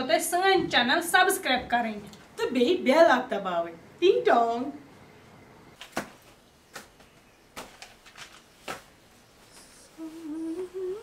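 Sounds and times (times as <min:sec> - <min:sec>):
plastic basket and cloth rustling: 0:05.8 - 0:09.9
woman humming: 0:09.6 - 0:11.0.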